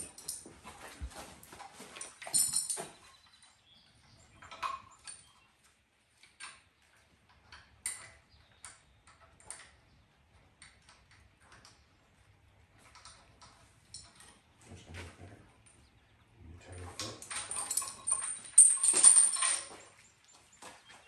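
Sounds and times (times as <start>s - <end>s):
chain clinking against metal: 0.0s - 5.4s, 12.9s - 14.4s, 16.7s - 20.9s.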